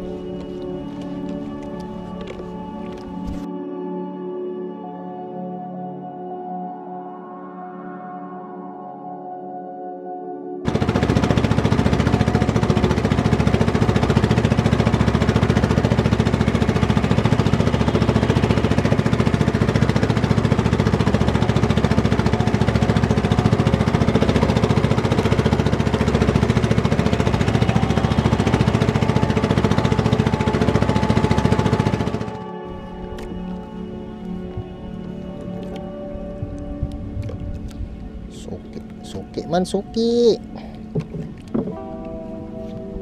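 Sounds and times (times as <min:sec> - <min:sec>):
boat engine pounding: 0:10.7 - 0:37.5, 0:38.3 - 0:42.3.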